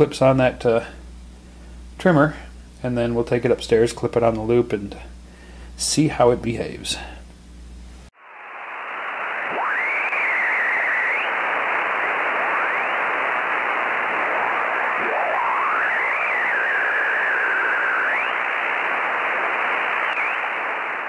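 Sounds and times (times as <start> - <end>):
radio band hiss: 8.2 - 21.0
whistling tones sliding up and down: 8.4 - 21.0.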